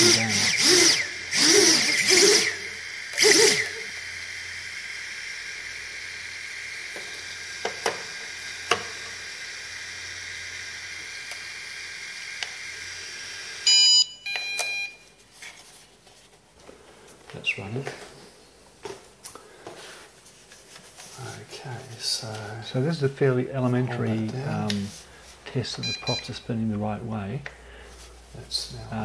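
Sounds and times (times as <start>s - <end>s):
small motors revving: 0.0s - 13.6s
high motor whine: 0.0s - 13.9s
electronic beeps: 13.7s - 15.0s, 25.8s - 26.4s.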